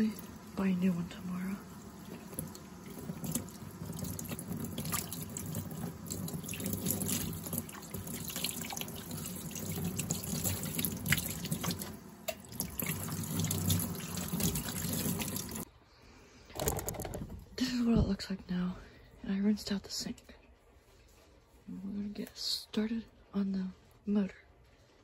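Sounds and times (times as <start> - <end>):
tap water running into sink: 0.0 - 15.6
water drips and splashes: 0.0 - 15.7.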